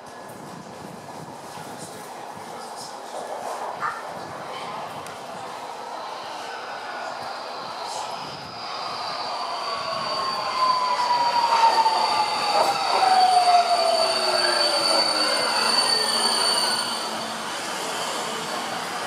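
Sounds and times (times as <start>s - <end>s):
high brake squeal: 7.8s - 18.8s.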